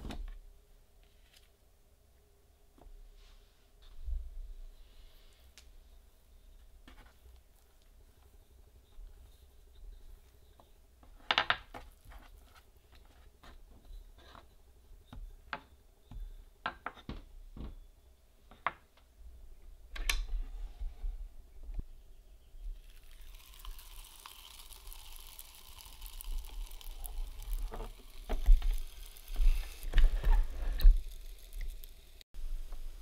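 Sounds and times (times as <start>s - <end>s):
dough sizzling on hot iron: 22.8s - 33.0s.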